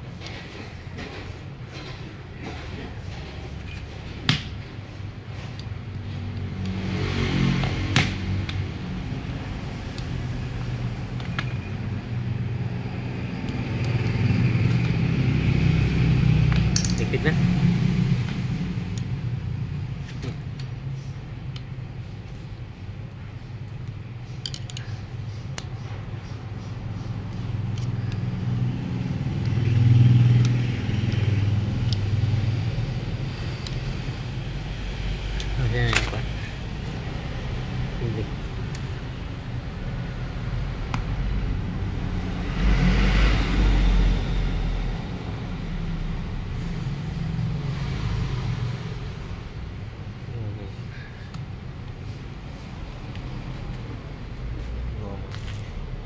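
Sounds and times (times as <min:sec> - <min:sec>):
vehicle engine hum: 0:00.0 - 0:56.0
metal clicks of hand tool: 0:16.5 - 0:17.0, 0:24.4 - 0:25.0.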